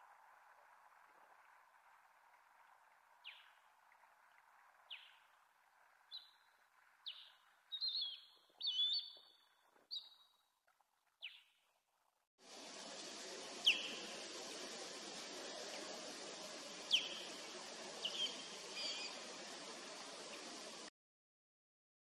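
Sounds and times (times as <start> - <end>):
osprey calling: 6.1 - 10.3, 13.4 - 20.9.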